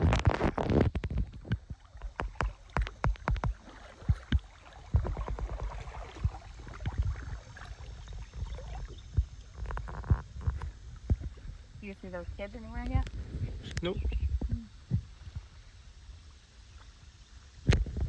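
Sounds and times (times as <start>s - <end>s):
paddle strokes in water: 0.0s - 13.7s.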